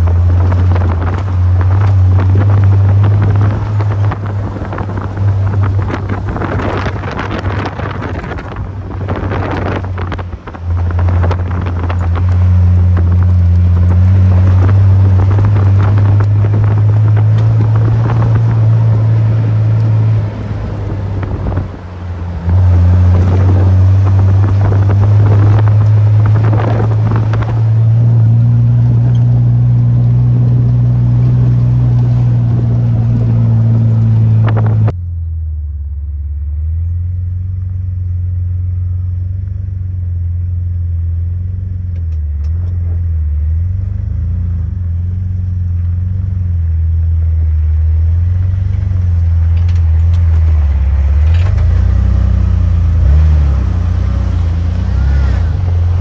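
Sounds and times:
wind noise: 0:00.0 - 0:35.0
car engine droning: 0:00.0 - 0:56.0.

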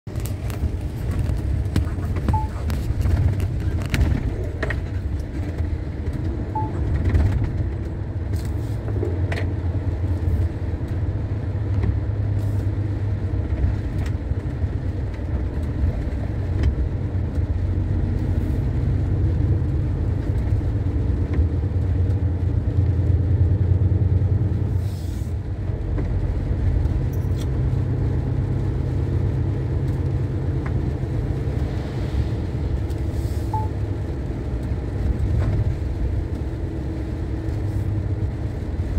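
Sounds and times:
truck engine droning: 0:00.1 - 0:15.0, 0:15.7 - 0:38.9.

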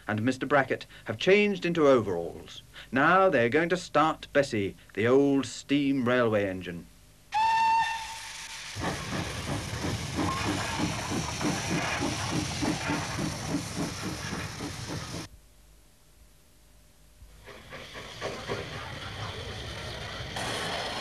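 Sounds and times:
steam engine chuffing: 0:07.4 - 0:15.3, 0:17.4 - 0:21.0
steam hissing: 0:07.4 - 0:15.3, 0:17.4 - 0:21.0.

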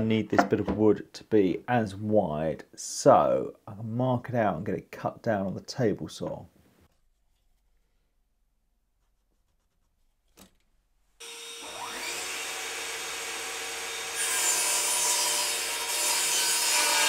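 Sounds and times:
saw blade cutting wood: 0:11.2 - 0:17.0
table saw whining: 0:11.2 - 0:17.0.

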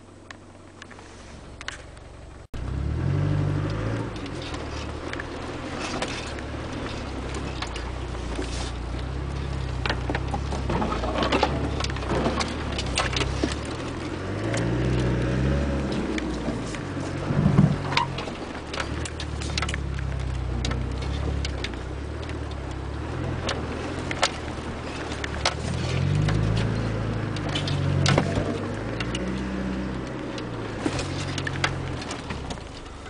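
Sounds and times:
diesel engine at low revs: 0:00.0 - 0:33.0
vehicle knocking and rattling: 0:03.8 - 0:33.0.

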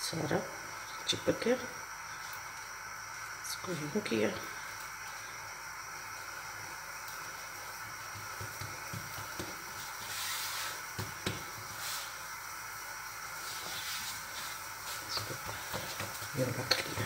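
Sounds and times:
steady hiss: 0:00.0 - 0:17.0
hands patting dough: 0:07.9 - 0:11.7, 0:14.9 - 0:17.0
short rustling hiss: 0:09.7 - 0:11.0.

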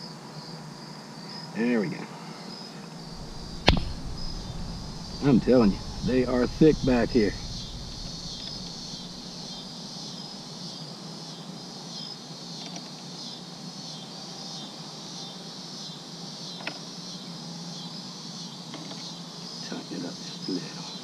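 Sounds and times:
insects chirping: 0:03.0 - 0:09.7
low steady hum: 0:03.1 - 0:09.7.

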